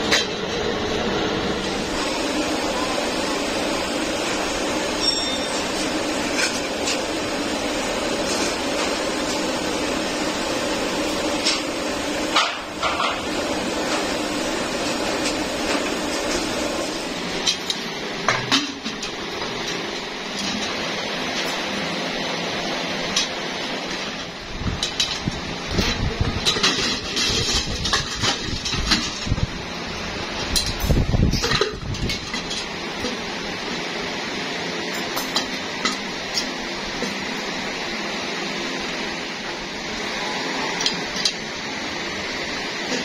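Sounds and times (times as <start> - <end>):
workshop machinery humming: 0.0 - 43.0.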